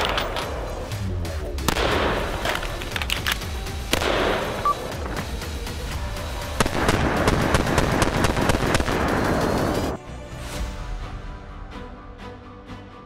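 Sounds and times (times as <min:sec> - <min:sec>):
background music: 0:00.0 - 0:13.0
rifle shots: 0:01.7 - 0:04.8, 0:06.6 - 0:09.9.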